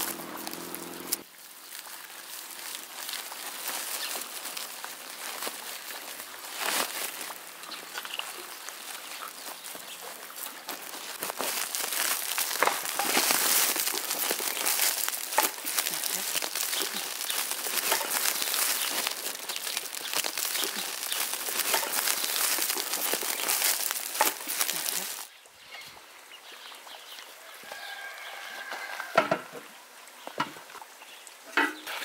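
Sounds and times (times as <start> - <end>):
plastic sack rustling: 0.0 - 25.3.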